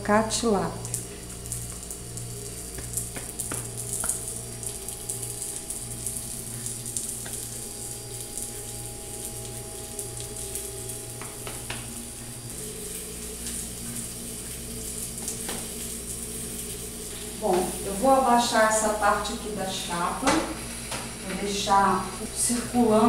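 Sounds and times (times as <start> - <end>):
steady low hum: 0.0 - 23.0
fish sizzling on a griddle: 0.4 - 23.0
light knocks on griddle: 2.8 - 4.2.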